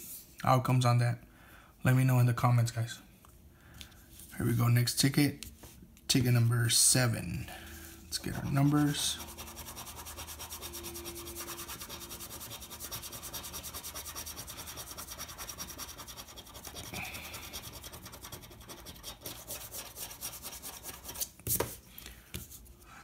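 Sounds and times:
coin scraping scratch card: 0:08.4 - 0:21.2.

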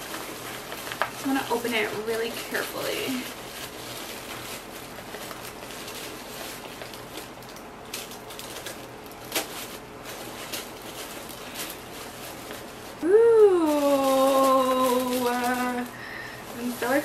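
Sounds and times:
tissue paper rustling: 0:00.0 - 0:17.0
woman saying ooh: 0:13.0 - 0:15.9.

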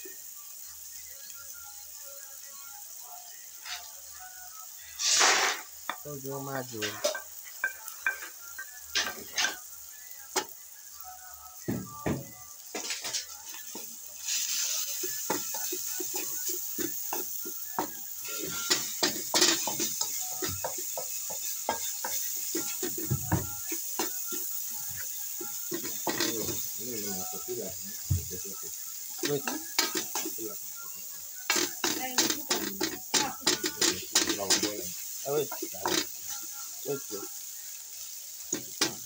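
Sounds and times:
filling sizzling in a pan: 0:00.0 - 0:39.0
utensil scraping pan: 0:18.2 - 0:23.2.

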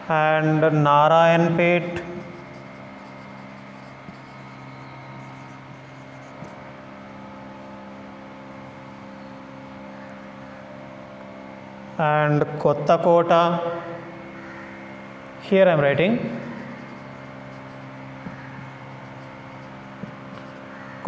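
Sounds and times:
background hum: 0:00.0 - 0:21.0
marker writing on whiteboard: 0:01.8 - 0:06.7, 0:16.0 - 0:20.7.

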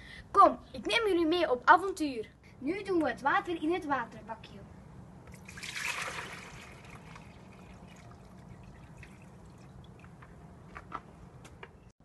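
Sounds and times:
water splashing from bucket: 0:05.3 - 0:10.2
water dribbling: 0:05.3 - 0:10.6.

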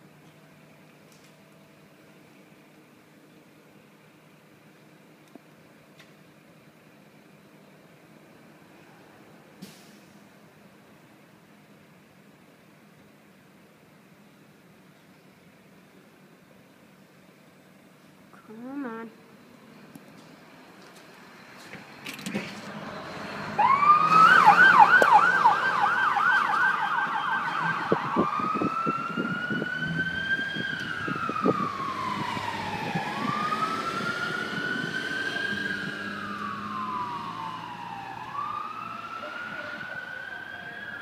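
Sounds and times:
rescue truck siren: 0:22.8 - 0:41.0.

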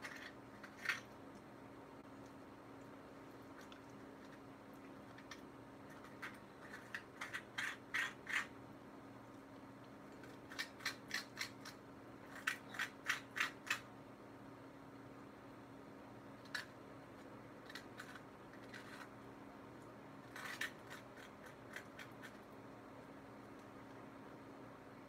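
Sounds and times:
fingers peeling avocado skin: 0:00.0 - 0:01.5, 0:03.4 - 0:08.6, 0:10.1 - 0:13.9, 0:16.4 - 0:19.2, 0:20.2 - 0:22.5.

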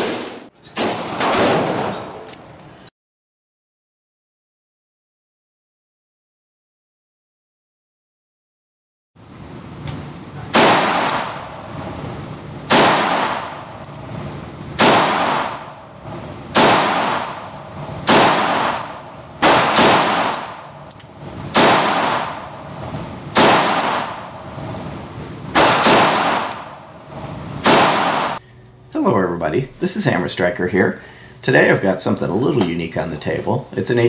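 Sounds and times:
pistol shots echoing indoors: 0:00.8 - 0:02.3, 0:10.5 - 0:12.0, 0:12.7 - 0:14.0, 0:14.8 - 0:24.8, 0:25.5 - 0:28.4.

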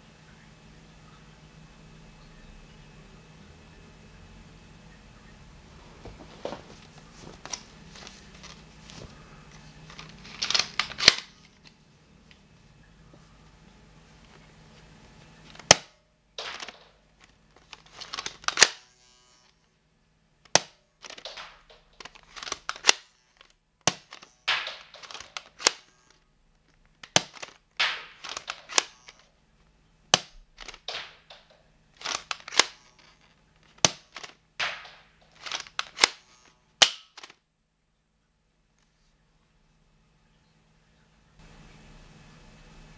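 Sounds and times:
rattling cocking strokes: 0:09.9 - 0:11.6, 0:15.5 - 0:19.6, 0:20.5 - 0:26.2, 0:27.0 - 0:29.3, 0:30.2 - 0:37.4
toy dart blaster snapping: 0:09.9 - 0:11.6, 0:15.5 - 0:19.6, 0:20.5 - 0:26.2, 0:27.0 - 0:29.3, 0:30.1 - 0:37.4.

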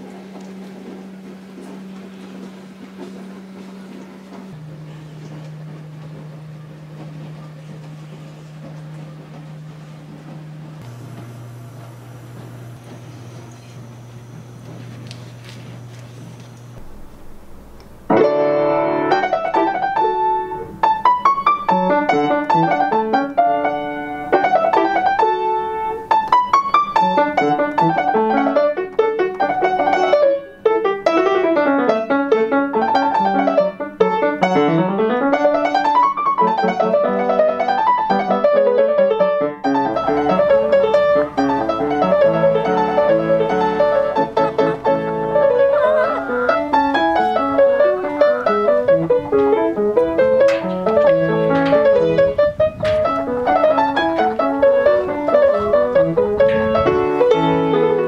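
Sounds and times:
fast solo piano piece: 0:16.8 - 0:58.0.

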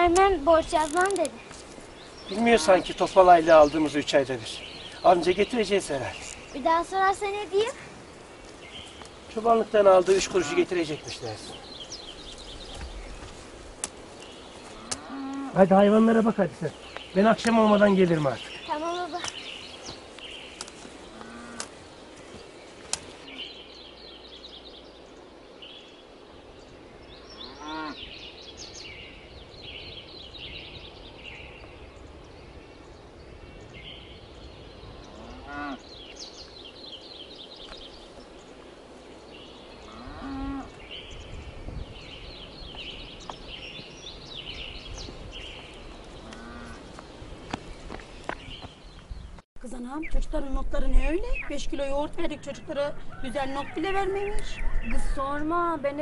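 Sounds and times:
cattle mooing: 0:14.8 - 0:15.6, 0:21.1 - 0:21.6, 0:35.1 - 0:35.8, 0:46.2 - 0:46.8.

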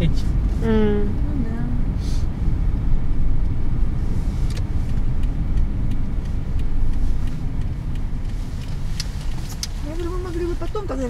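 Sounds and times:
car engine and tyres rumbling: 0:00.0 - 0:11.0
faint regular ticks: 0:04.4 - 0:11.0.

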